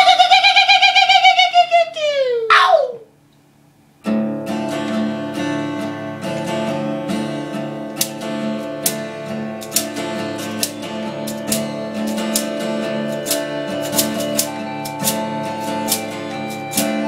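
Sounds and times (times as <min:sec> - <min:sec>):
acoustic guitar strumming: 0:04.0 - 0:17.0.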